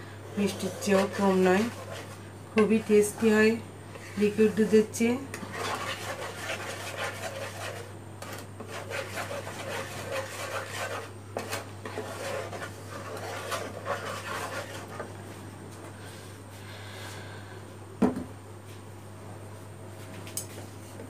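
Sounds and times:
steady low hum: 0.0 - 21.0
wooden spatula scraping a pan: 0.3 - 15.1.

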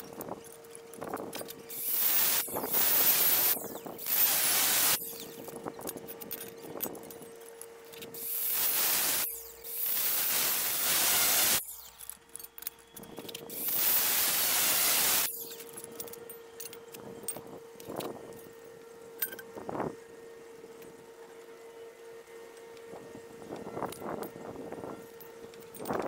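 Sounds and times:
faint steady hum: 0.0 - 26.0
aerosol can spraying: 9.9 - 11.6, 13.6 - 15.3.

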